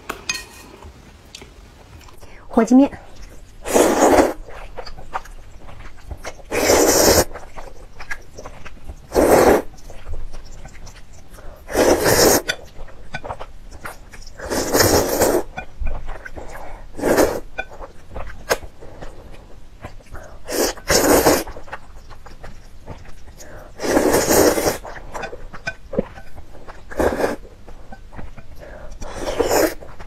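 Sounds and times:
person slurping noodles: 3.6s - 4.7s, 6.4s - 7.6s, 9.1s - 9.7s, 11.7s - 12.5s, 14.3s - 15.5s, 16.2s - 17.5s, 20.2s - 21.7s, 23.4s - 25.2s, 26.8s - 27.4s, 28.6s - 29.9s.

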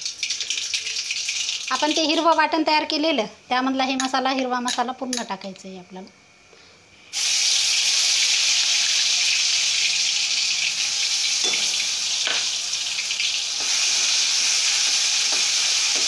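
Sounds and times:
paste sizzling in hot oil: 0.0s - 2.2s, 7.1s - 16.0s.

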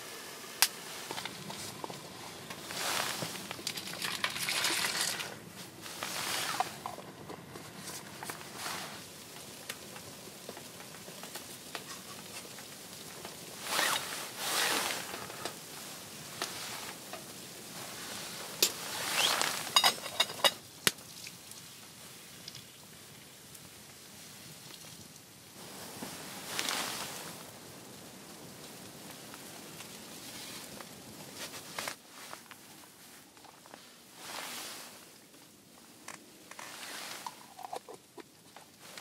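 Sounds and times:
jacket and container rustling: 0.9s - 9.0s, 13.6s - 15.4s, 18.7s - 20.6s.

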